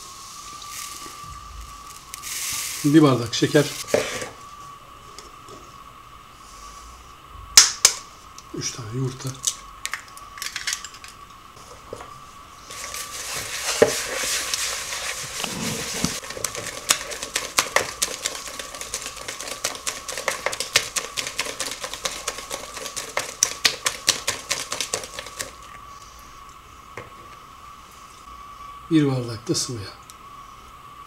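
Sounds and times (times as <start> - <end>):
whisk clicking against bowl: 16.2 - 25.6.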